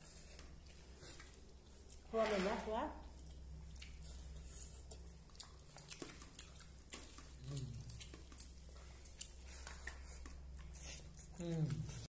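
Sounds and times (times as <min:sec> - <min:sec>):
steady low hum: 0:00.0 - 0:12.0
eating clicks and chewing: 0:03.0 - 0:12.0.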